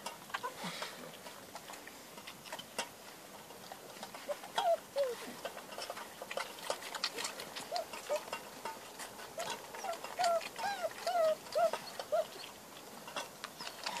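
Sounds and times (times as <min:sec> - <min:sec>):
puppies squeaking and whining: 0:04.1 - 0:05.6, 0:06.7 - 0:08.4, 0:09.2 - 0:12.6, 0:13.6 - 0:14.0.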